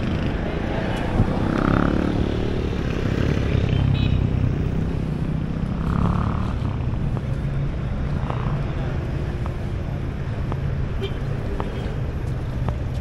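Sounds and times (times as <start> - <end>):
passing vehicles rumbling: 0.0 - 13.0.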